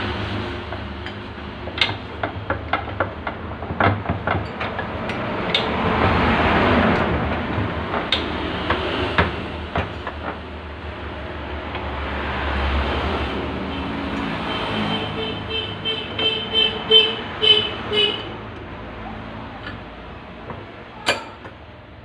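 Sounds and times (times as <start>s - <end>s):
metallic clicks and knocks: 0.7s - 6.2s, 19.5s - 21.7s.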